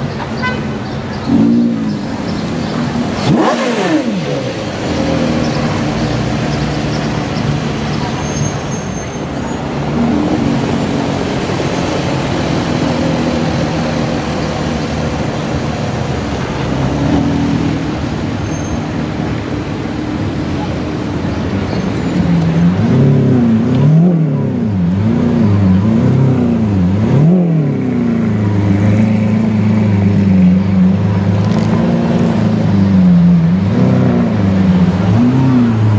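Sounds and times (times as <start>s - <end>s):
car engine revving: 1.2s - 8.7s.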